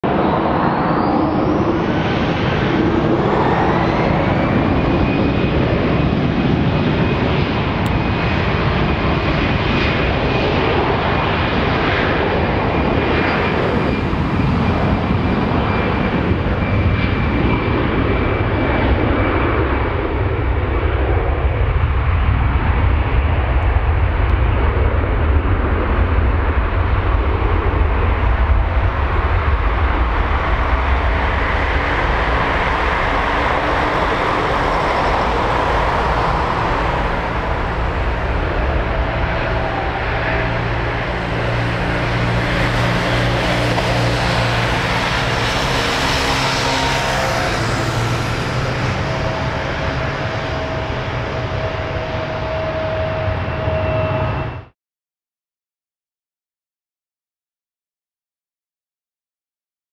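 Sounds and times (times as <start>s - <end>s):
jet engine whine: 0.0s - 54.8s
jet roar: 0.0s - 54.8s
deep rumble: 19.7s - 54.5s.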